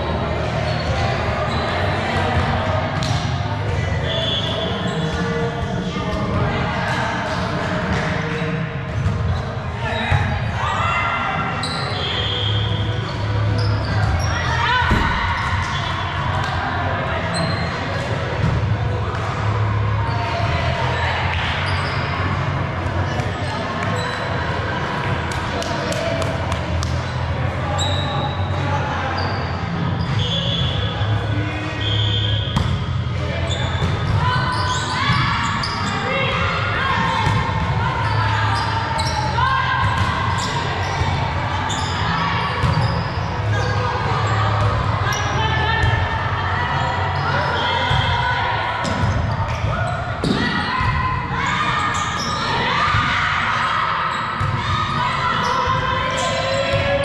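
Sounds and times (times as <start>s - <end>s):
sneakers squeaking on court floor: 0.6s - 5.8s, 11.4s - 16.1s, 17.2s - 20.2s, 20.9s - 25.6s, 26.7s - 46.0s, 51.8s - 53.1s.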